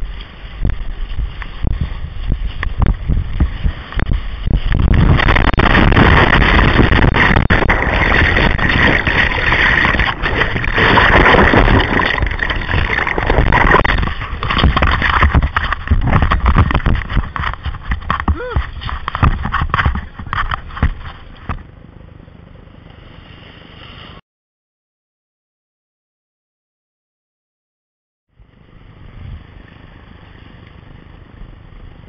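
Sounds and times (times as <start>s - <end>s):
wind buffeting microphone: 0.0s - 21.6s
whitewater rushing and splashing: 4.7s - 20.8s.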